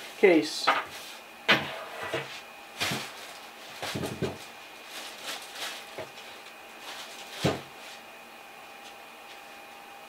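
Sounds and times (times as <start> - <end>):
plastic packaging crinkling: 2.8 - 8.0
items knocking on wooden bench: 3.8 - 4.4.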